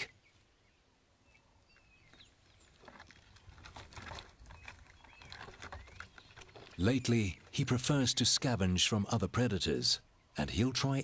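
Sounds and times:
faint bird chirps: 0.0s - 3.4s
scratching and rustling on bark: 2.0s - 7.7s.

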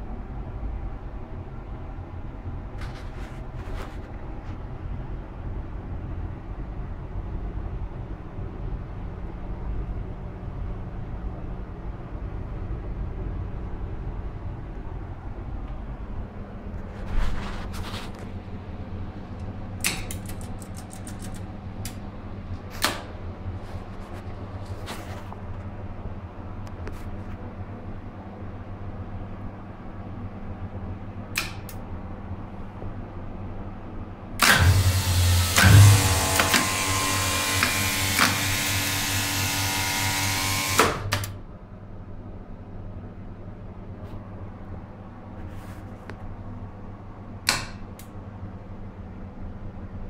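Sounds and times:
steady electrical hum: 0.0s - 50.0s
relays clicking: 19.4s - 22.0s.

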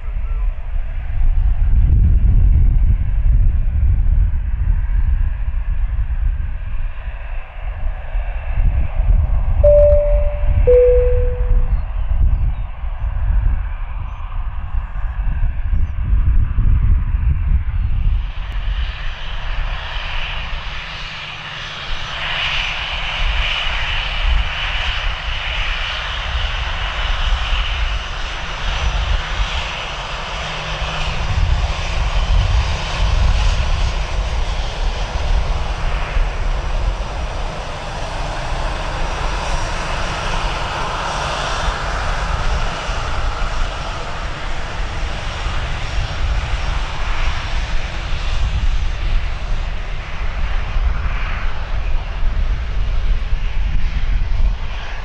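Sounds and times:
high engine whine: 9.6s - 11.8s.

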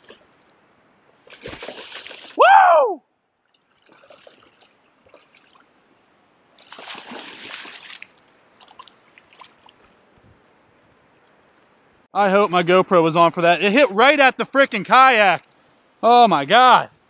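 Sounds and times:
fish splashing in water: 1.2s - 2.4s, 6.6s - 9.6s
water dripping: 6.6s - 9.9s.

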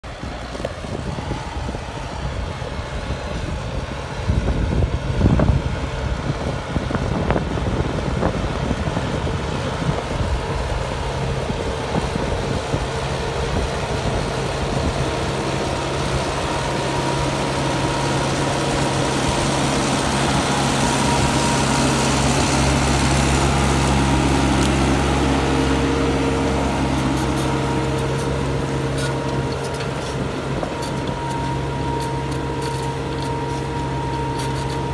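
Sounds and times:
tractor diesel engine under load: 0.0s - 34.9s.

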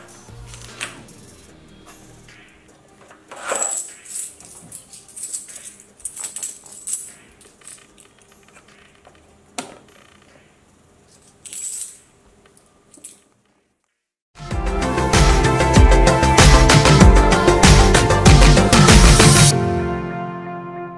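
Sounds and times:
coins clinking: 2.9s - 9.0s, 11.1s - 13.4s.

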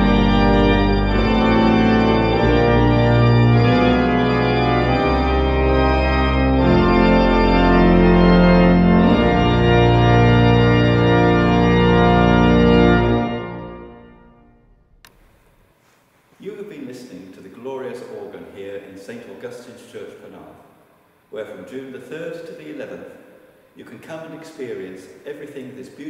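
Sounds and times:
pipe organ playing chords: 0.0s - 15.6s.

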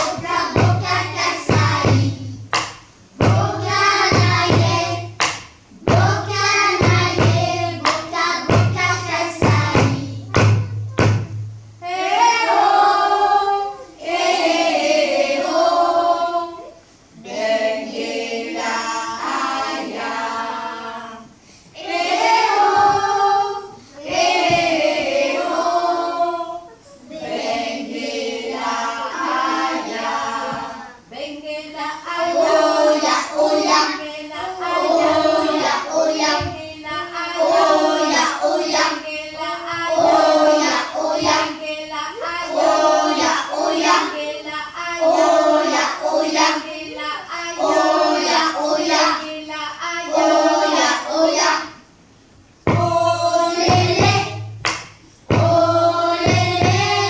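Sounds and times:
children's choir singing: 0.0s - 52.0s, 52.6s - 54.6s, 55.2s - 57.0s.

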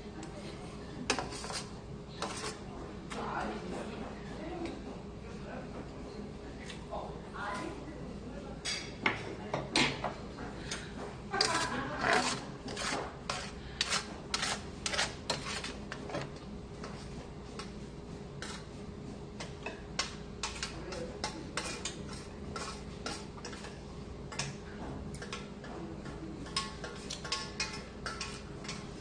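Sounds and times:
spoon scraping steel pan: 11.4s - 15.8s.

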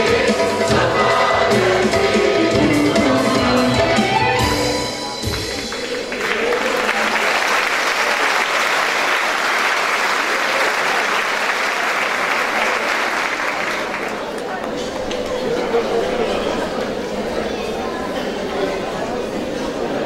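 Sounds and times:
choir and ensemble music: 0.0s - 6.8s
audience applauding: 5.2s - 15.6s.

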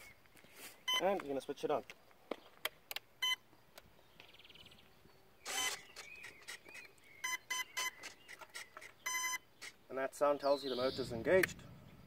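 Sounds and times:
short pitched motor beeps: 5.5s - 6.4s, 7.2s - 8.2s, 9.0s - 9.4s.

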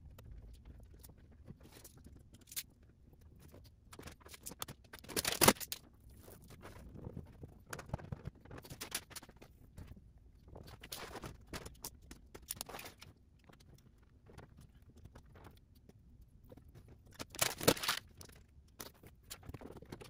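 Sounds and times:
vinyl film rustling: 4.0s - 6.7s, 17.2s - 20.0s.

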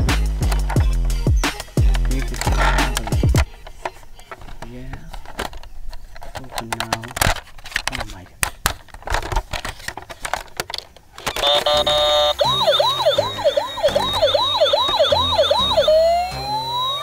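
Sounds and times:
toy handling clicks and knocks: 0.4s - 15.6s
electronic toy siren: 11.2s - 17.0s.

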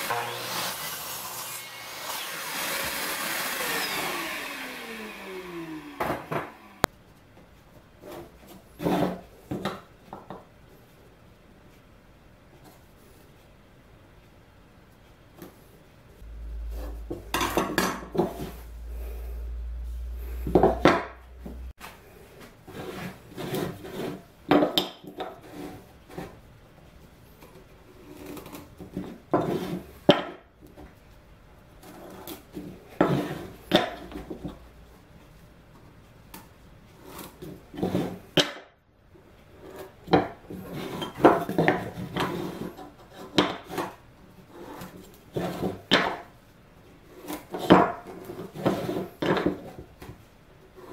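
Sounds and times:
low steady hum: 16.1s - 21.8s
knocks and clatter on workbench: 41.0s - 42.4s, 45.4s - 46.3s, 48.6s - 50.2s.

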